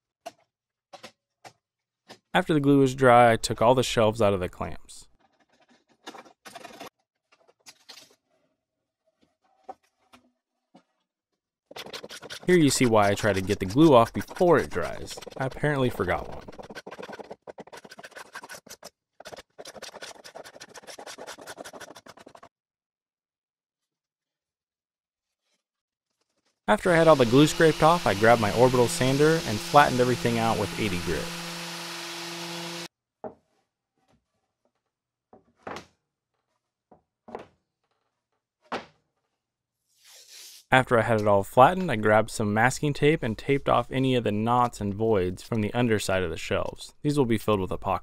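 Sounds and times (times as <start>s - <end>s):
scraper scraping wood: 11.7s - 22.5s, 25.2s - 32.9s.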